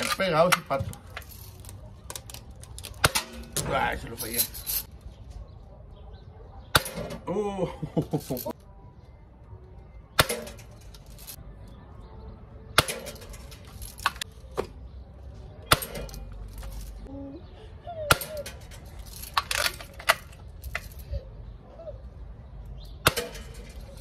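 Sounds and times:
pellets striking steel targets: 0:02.8 - 0:04.9, 0:06.7 - 0:07.3, 0:10.1 - 0:11.4, 0:12.7 - 0:14.8, 0:15.6 - 0:17.0, 0:18.1 - 0:20.9, 0:22.9 - 0:24.0.

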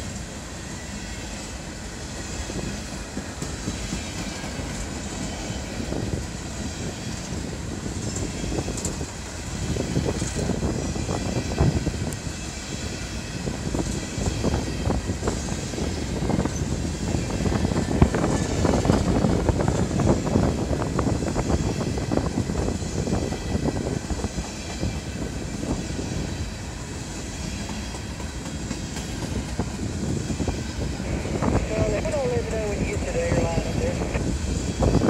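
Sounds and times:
freight train rolling past: 0:00.0 - 0:35.0.

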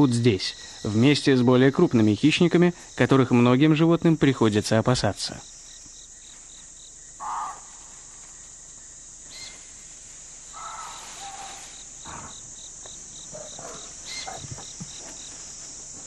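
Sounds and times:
cricket chirping: 0:00.0 - 0:16.0
high insect drone: 0:00.0 - 0:16.0
harsh animal calls: 0:07.2 - 0:08.0, 0:10.5 - 0:12.5, 0:13.3 - 0:14.7.

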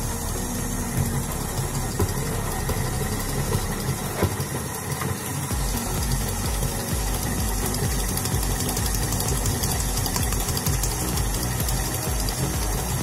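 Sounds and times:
stand mixer motor hum: 0:00.0 - 0:13.0.

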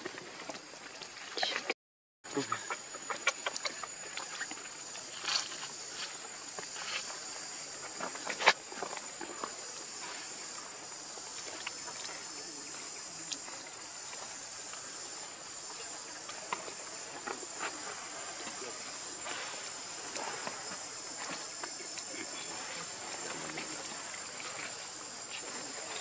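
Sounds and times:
insects droning: 0:00.0 - 0:01.7, 0:02.3 - 0:26.0
small rustles: 0:03.1 - 0:14.9.

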